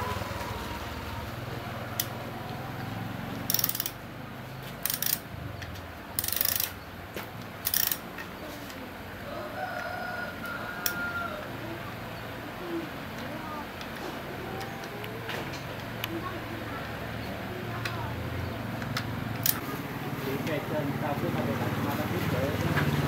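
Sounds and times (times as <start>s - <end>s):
ratchet wrench clicking: 2.0s - 2.2s, 3.4s - 4.0s, 4.8s - 6.8s, 7.6s - 8.3s, 18.8s - 19.6s.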